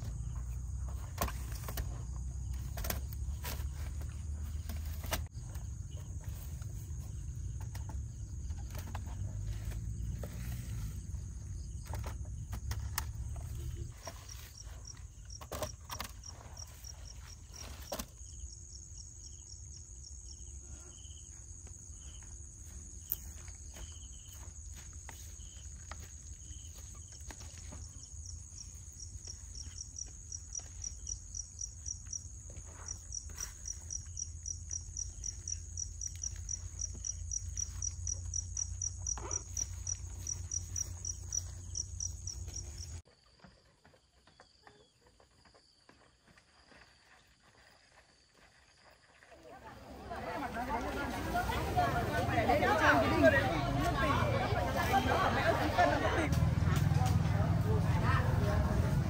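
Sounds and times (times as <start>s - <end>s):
crickets chirping: 0.0s - 43.3s, 44.0s - 59.0s
insects chirring: 0.0s - 43.3s.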